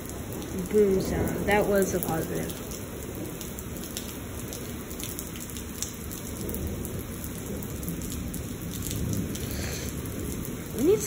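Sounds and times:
heavy rain on concrete: 0:00.0 - 0:11.0
low rumble of thunder: 0:00.0 - 0:11.0.

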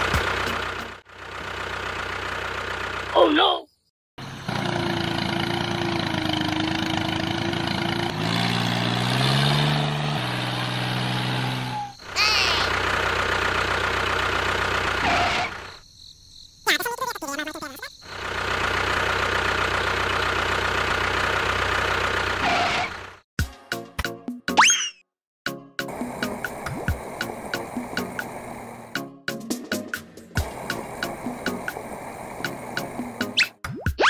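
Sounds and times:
tractor engine running: 0:00.0 - 0:03.5, 0:04.2 - 0:15.8, 0:16.8 - 0:23.3, 0:25.8 - 0:33.5.

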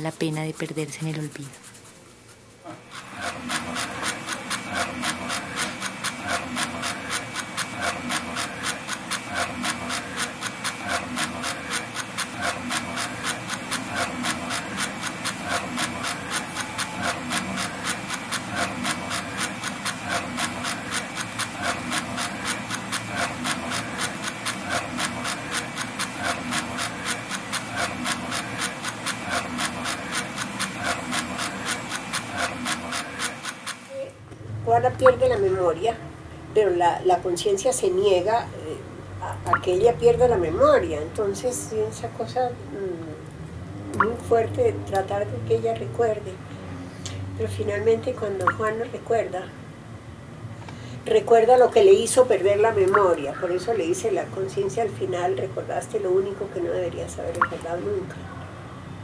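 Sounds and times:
rhythmic rasping strokes: 0:00.0 - 0:33.9.

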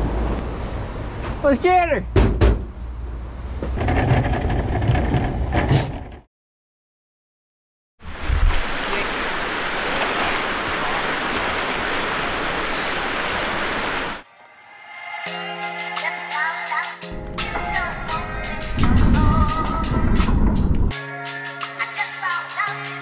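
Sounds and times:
river rushing over rocks: 0:08.1 - 0:14.2.

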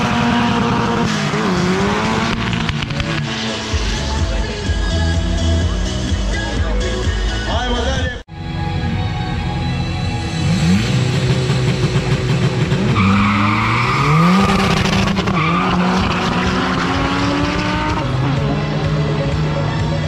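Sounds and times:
racing engine accelerating: 0:00.0 - 0:04.6, 0:09.3 - 0:20.0.

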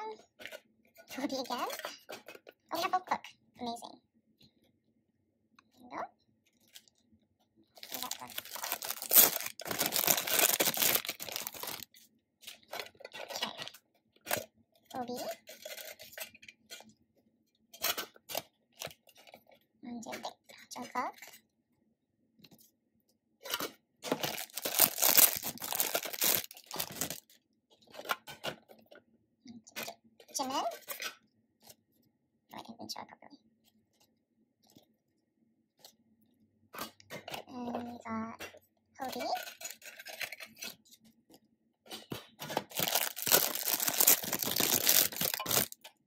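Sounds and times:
plastic wrapping crinkling: 0:07.8 - 0:12.0, 0:24.1 - 0:27.3, 0:42.6 - 0:45.9.

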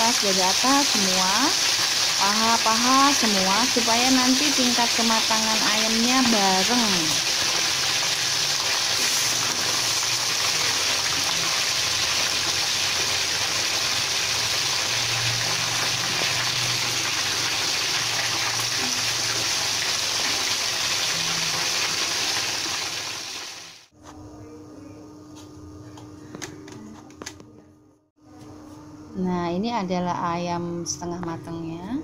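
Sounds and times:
oil sizzling in a wok: 0:00.0 - 0:23.9.

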